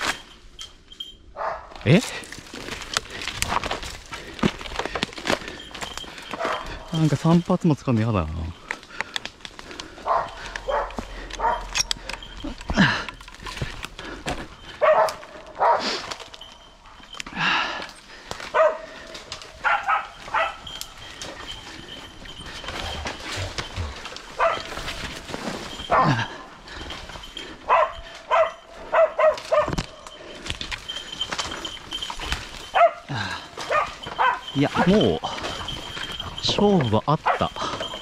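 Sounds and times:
hounds barking: 0:01.4 - 0:01.8, 0:06.2 - 0:07.1, 0:09.6 - 0:13.0, 0:14.2 - 0:16.4, 0:18.4 - 0:32.0, 0:32.6 - 0:38.0.

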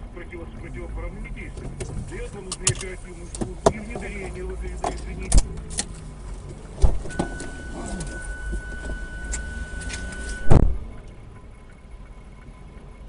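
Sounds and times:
car road rumble: 0:00.0 - 0:13.0
loud thump: 0:06.8 - 0:07.4, 0:10.4 - 0:10.8
steady high tone: 0:07.1 - 0:10.9.

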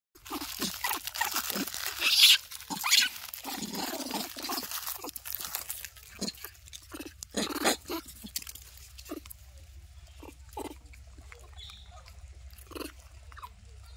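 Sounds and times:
monkeys grunting: 0:00.2 - 0:05.3, 0:06.1 - 0:09.3, 0:10.1 - 0:13.6
foil packet crinkling: 0:00.2 - 0:09.3.

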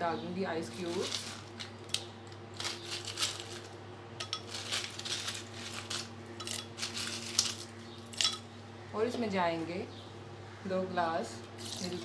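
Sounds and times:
ice cubes clinking in glass jar: 0:00.8 - 0:01.6, 0:02.6 - 0:08.4.

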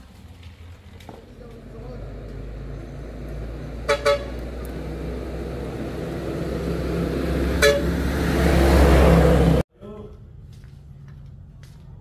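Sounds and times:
vehicle engine running: 0:00.0 - 0:09.6
short horn toots: 0:03.8 - 0:04.4, 0:07.6 - 0:08.0.

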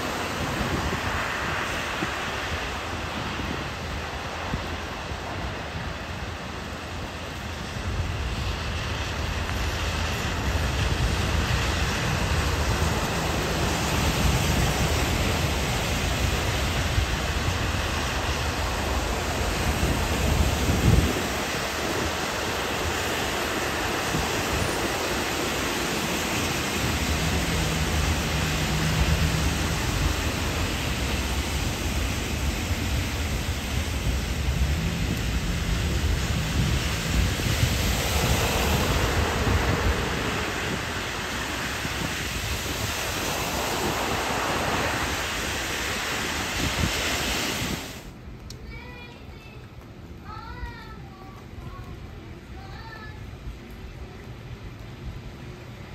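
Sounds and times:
tyres hissing on wet road: 0:00.0 - 0:49.6
car engines rumbling: 0:25.0 - 0:45.2.

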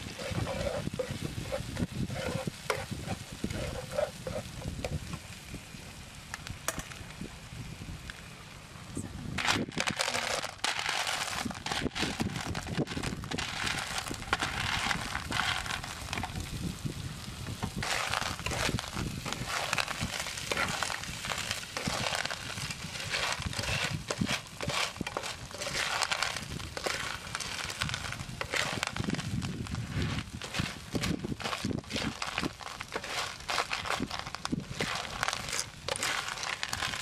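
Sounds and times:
oil sizzling: 0:00.0 - 0:37.0
shells clattering in a pan: 0:09.4 - 0:16.5, 0:17.6 - 0:37.0.

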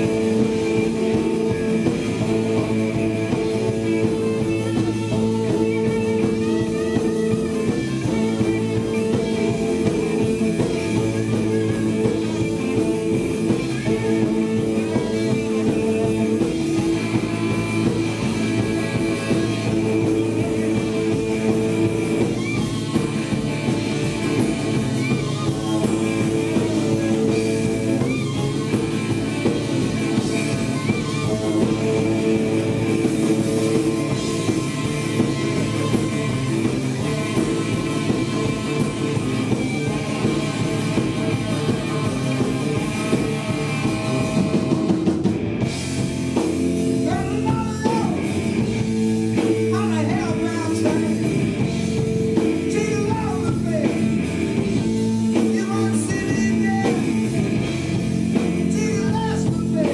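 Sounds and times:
blues-rock band playing: 0:00.0 - 0:59.9
person singing lead vocal: 0:47.0 - 0:48.4, 0:49.6 - 0:54.2, 0:55.3 - 0:57.8, 0:58.4 - 0:59.9.

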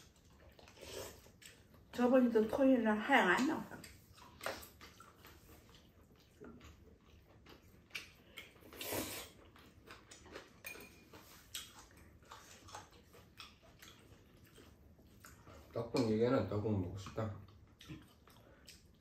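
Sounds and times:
noodles being slurped: 0:00.0 - 0:01.8, 0:03.8 - 0:16.2.

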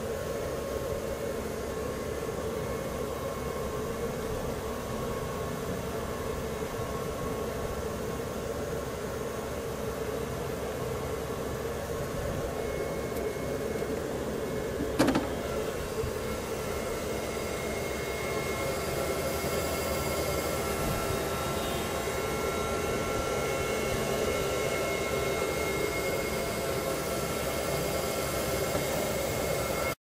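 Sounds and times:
cooling fans running: 0:00.0 - 0:30.0
faint high whine: 0:00.0 - 0:30.0.

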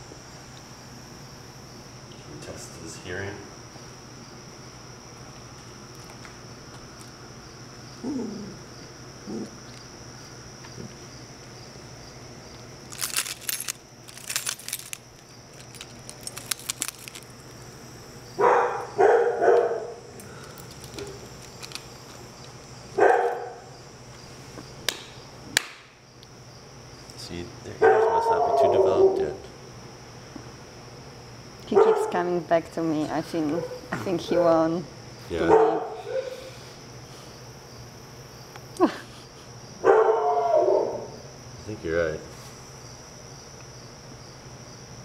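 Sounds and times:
keys jingling: 0:12.9 - 0:17.4, 0:20.4 - 0:22.2.

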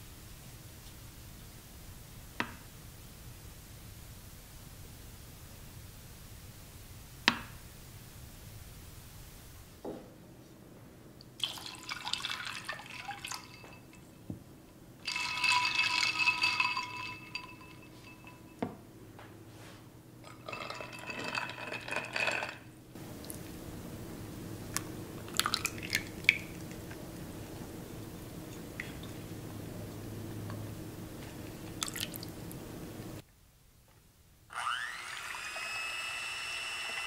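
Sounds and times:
low steady hum: 0:00.0 - 0:34.4
liquid poured into a glass bowl: 0:11.4 - 0:14.0, 0:15.0 - 0:18.4, 0:20.3 - 0:22.6, 0:25.3 - 0:26.6, 0:31.8 - 0:32.3
glass clinks: 0:12.8 - 0:14.3, 0:15.0 - 0:18.8, 0:20.3 - 0:22.6.

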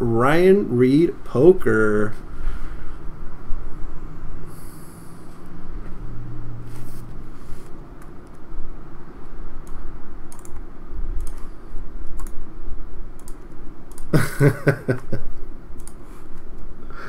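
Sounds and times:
steady low rumble: 0:00.0 - 0:17.0
computer mouse and keyboard clicks: 0:09.6 - 0:10.6, 0:11.2 - 0:12.4, 0:13.2 - 0:14.1, 0:15.8 - 0:16.7.

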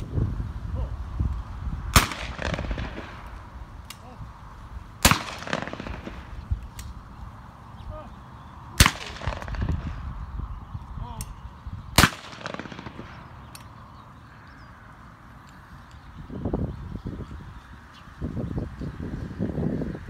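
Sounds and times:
shotgun shots with echo: 0:01.9 - 0:03.4, 0:05.0 - 0:06.5, 0:08.8 - 0:10.0, 0:12.0 - 0:13.5
distant single shots: 0:01.9 - 0:04.0, 0:05.0 - 0:07.0, 0:08.7 - 0:10.1, 0:11.9 - 0:13.8.

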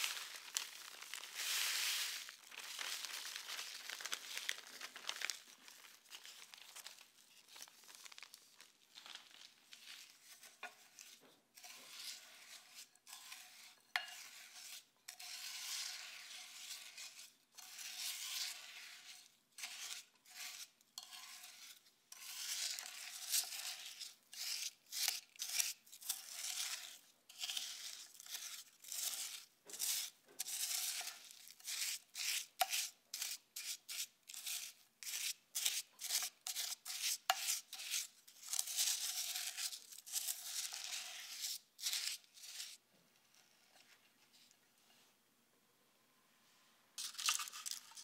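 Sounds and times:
wooden spoon scraping glass bowl: 0:10.2 - 0:44.0.

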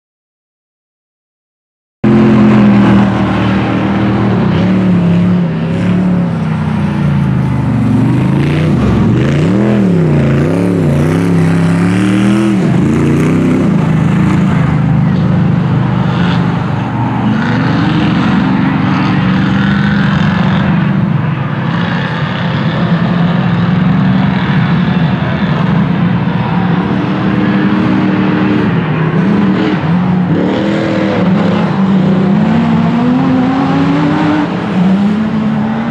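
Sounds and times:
race vehicle engines revving: 0:02.0 - 0:35.9.

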